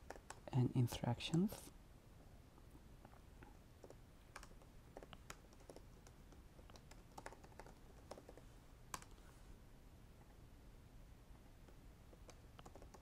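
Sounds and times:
faint keyboard typing: 0.0s - 1.7s, 3.0s - 9.3s, 11.4s - 13.0s.

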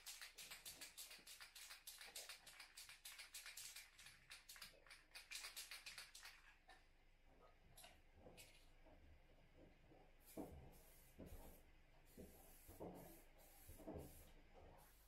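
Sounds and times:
spray can ball rattling: 0.0s - 6.5s.

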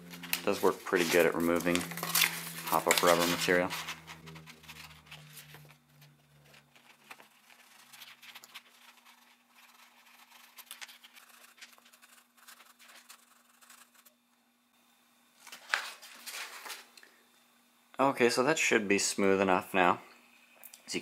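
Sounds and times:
rubber scratching on sandpaper: 6.6s - 14.1s.

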